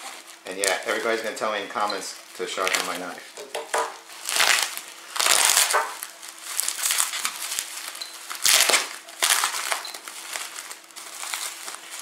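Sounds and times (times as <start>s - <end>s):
bubble wrap crinkling: 0.0s - 12.0s.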